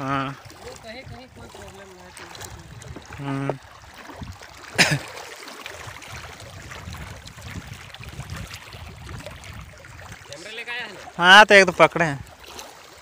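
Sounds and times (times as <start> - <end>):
water lapping against stones: 0.0 - 13.0
wind noise: 0.6 - 4.6, 5.8 - 10.4.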